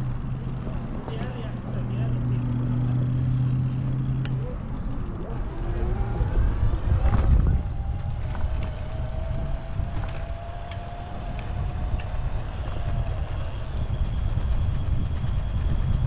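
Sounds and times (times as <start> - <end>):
bike road rumble: 0.0 - 16.0
wind on camera microphone: 5.4 - 16.0.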